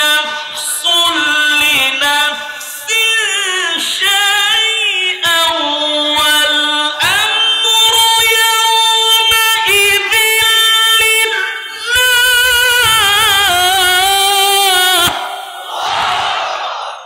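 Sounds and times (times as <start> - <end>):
man chanting melodically: 0.0 - 15.6.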